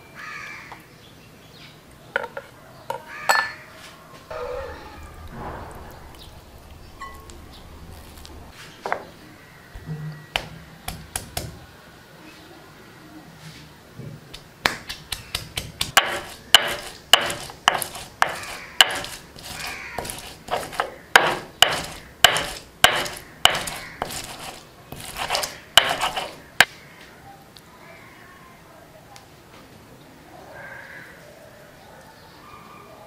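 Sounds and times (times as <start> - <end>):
stone knocking on stone slab: 14.7 - 26.7
gritty stone scraping: 15.7 - 26.7.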